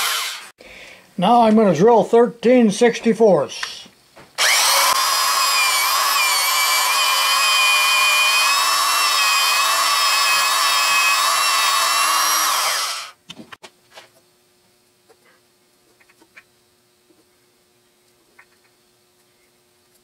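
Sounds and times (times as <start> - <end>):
electric drill drilling into metal: 0.0 - 0.5, 4.4 - 13.2.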